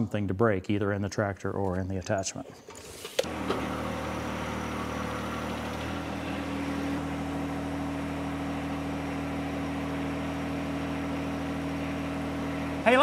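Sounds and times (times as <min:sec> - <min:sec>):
tractor diesel engine running: 0:03.3 - 0:13.0.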